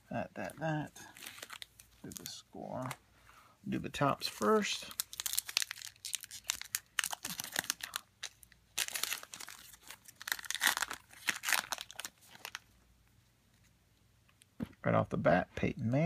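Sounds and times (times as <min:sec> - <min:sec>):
card pack wrapper crinkling and tearing: 0:01.0 - 0:03.0, 0:04.0 - 0:12.7.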